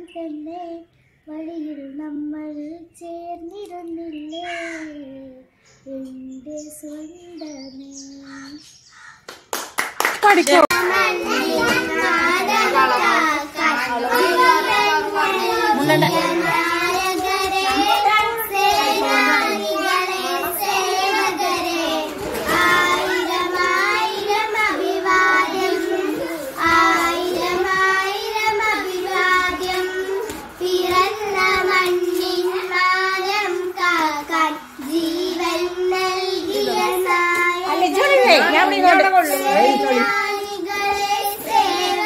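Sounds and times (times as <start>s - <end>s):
two girls singing together: 0.0s - 8.7s, 10.7s - 42.0s.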